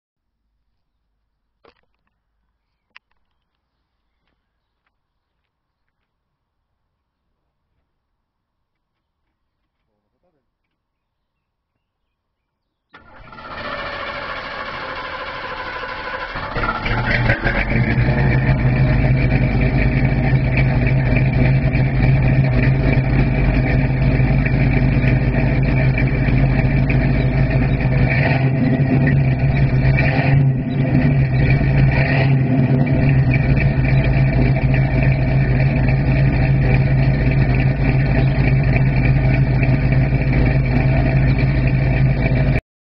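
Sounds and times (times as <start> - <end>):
car engine running: 13.0 - 42.6.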